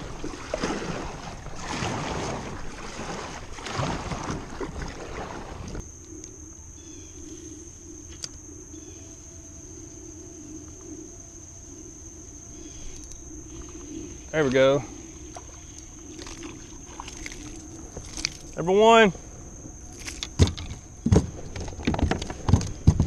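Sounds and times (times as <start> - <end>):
paddle strokes splashing water: 0.0 - 5.8, 12.8 - 22.6
faint chirps: 5.9 - 17.8.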